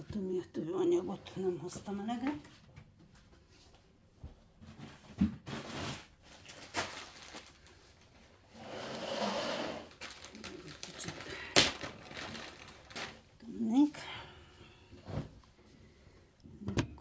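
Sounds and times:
stuffing rustling: 4.6s - 8.4s, 9.9s - 13.4s.

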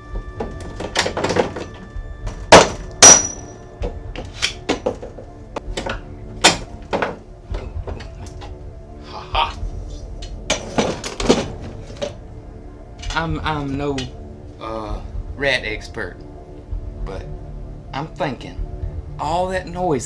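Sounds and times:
metal rod banging on wood: 2.5s - 4.0s.

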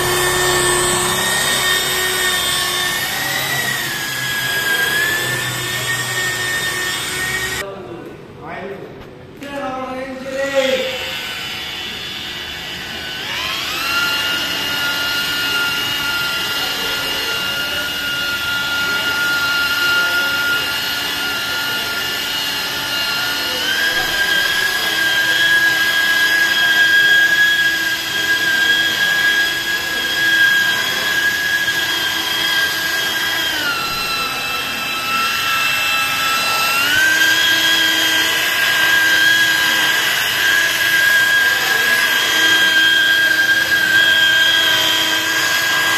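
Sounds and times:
car polisher motor whining: 0.0s - 7.6s, 10.6s - 45.9s.

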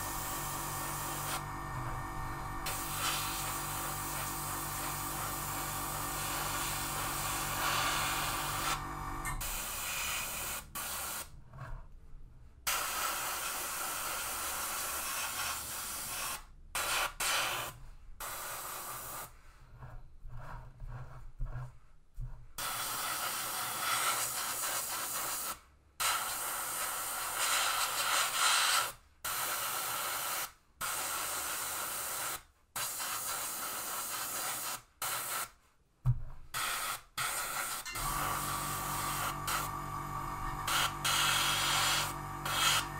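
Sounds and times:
airbrush hissing: 0.0s - 1.5s, 2.2s - 11.3s, 36.6s - 39.8s, 40.6s - 42.9s.

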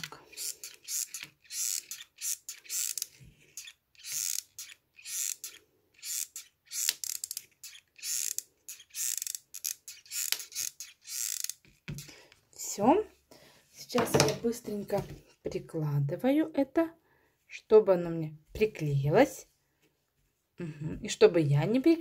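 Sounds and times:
glue gun mechanism creaking: 0.0s - 12.1s.

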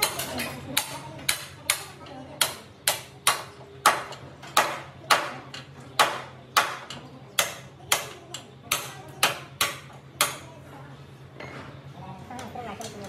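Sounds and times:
hammer striking metal: 0.0s - 5.4s, 6.0s - 10.4s.

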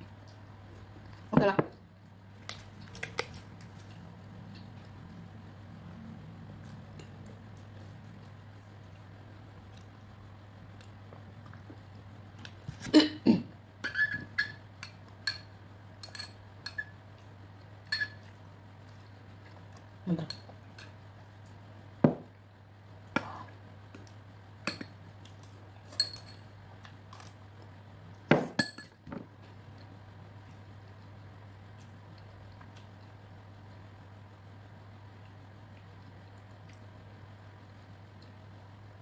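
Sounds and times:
spoon clinking against ceramic bowl: 17.9s - 18.2s.

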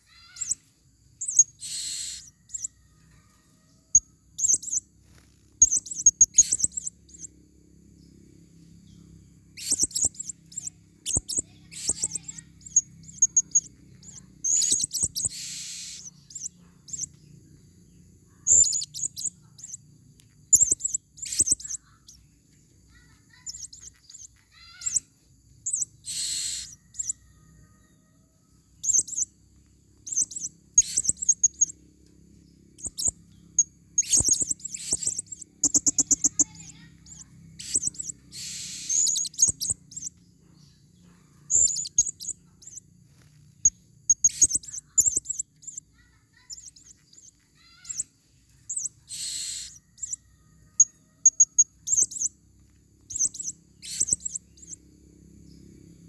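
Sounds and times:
parrots chirping high-pitched: 0.0s - 7.3s, 8.9s - 17.3s, 18.2s - 27.7s, 28.8s - 31.8s, 32.7s - 40.3s, 40.9s - 52.4s, 53.0s - 54.8s
parrot harsh screech: 1.6s - 2.3s, 26.0s - 26.8s, 37.6s - 39.2s.

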